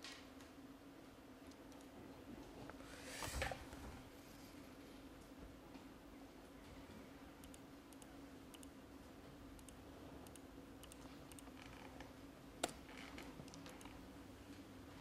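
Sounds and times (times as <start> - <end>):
laptop keyboard typing: 9.6 - 11.6, 13.4 - 14.0.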